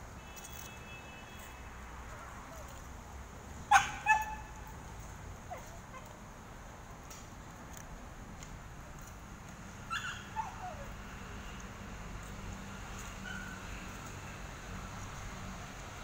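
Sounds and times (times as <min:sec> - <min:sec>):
faint outdoor background: 0:00.0 - 0:16.0
dog barking: 0:03.7 - 0:04.5.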